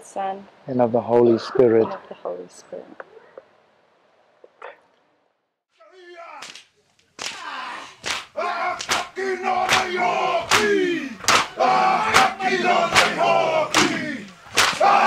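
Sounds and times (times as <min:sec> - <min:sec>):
men shouting rhythmic chant: 0:05.8 - 0:06.6, 0:07.2 - 0:15.0
sharp slap or stamp: 0:06.4 - 0:07.4, 0:08.0 - 0:09.1, 0:10.5 - 0:11.5, 0:13.7 - 0:15.0.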